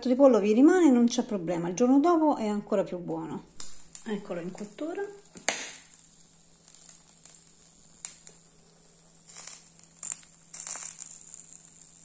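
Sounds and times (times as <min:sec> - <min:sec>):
small crackles and pops: 0:03.5 - 0:12.0
chicken sizzling on a grill: 0:03.6 - 0:12.0.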